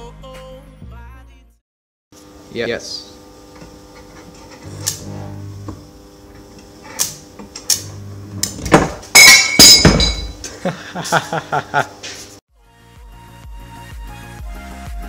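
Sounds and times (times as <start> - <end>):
metal pipe clattering crash: 8.7 - 10.4
metal clinks and clanks: 9.2 - 10.4.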